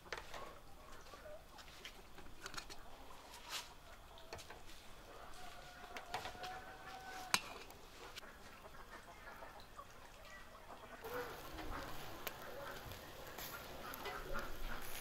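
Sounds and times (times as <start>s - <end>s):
chicken clucking: 0.0s - 7.3s, 8.0s - 15.0s.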